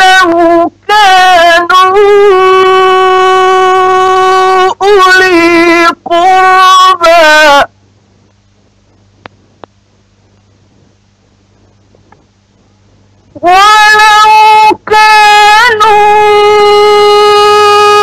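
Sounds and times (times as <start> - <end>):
man chanting recitation: 0.0 - 7.7, 13.3 - 18.0
faint low hum: 0.0 - 18.0
soft clicks: 8.2 - 10.5.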